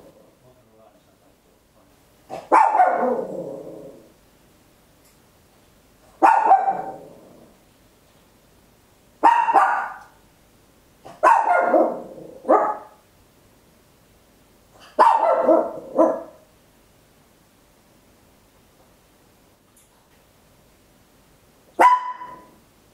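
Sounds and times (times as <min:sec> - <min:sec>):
dog barking sharply: 0:02.3 - 0:03.2, 0:06.2 - 0:07.0, 0:09.2 - 0:10.2, 0:11.1 - 0:13.0, 0:14.8 - 0:16.4, 0:21.8 - 0:22.6.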